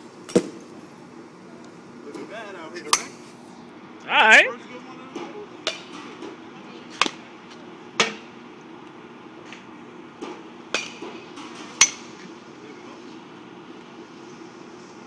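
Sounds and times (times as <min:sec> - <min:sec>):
steady low hum: 0:00.0 - 0:15.0
bat striking baseballs: 0:00.3 - 0:00.7, 0:02.9 - 0:03.2, 0:05.1 - 0:07.3, 0:07.9 - 0:08.4, 0:09.4 - 0:12.3.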